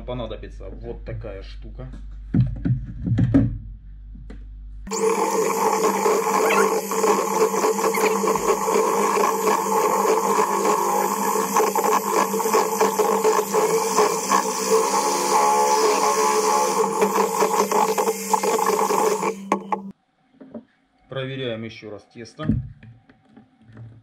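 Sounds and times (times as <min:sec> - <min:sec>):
electric hand mixer whisking batter: 0:04.9 - 0:19.9.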